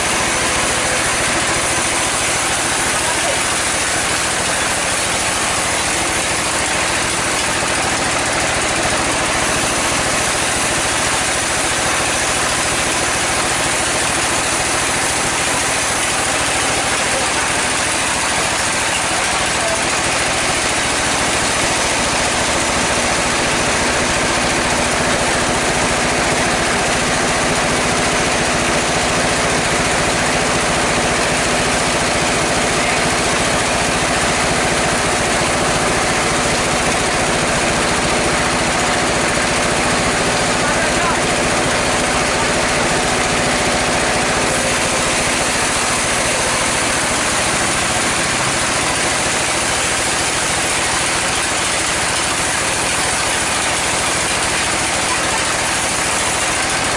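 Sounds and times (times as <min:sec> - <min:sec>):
sawmill saw cutting log: 0:00.0 - 0:56.9.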